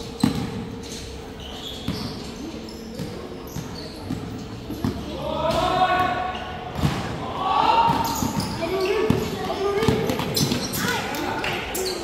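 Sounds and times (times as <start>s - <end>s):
basketballs bouncing on court floor: 0.2s - 0.6s, 7.8s - 11.0s.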